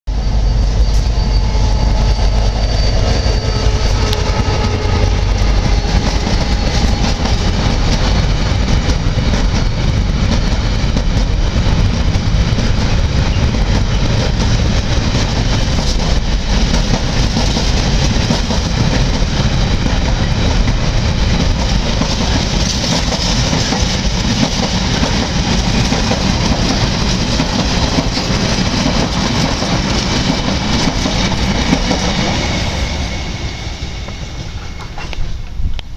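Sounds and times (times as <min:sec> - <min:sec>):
diesel locomotive engine: 0:00.1 - 0:35.9
train wheels rolling on rails: 0:00.2 - 0:35.9.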